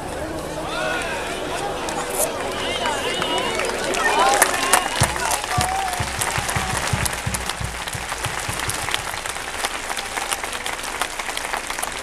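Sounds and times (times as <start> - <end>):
crowd applauding: 2.4 - 12.0
dull low thumps: 5.0 - 9.6.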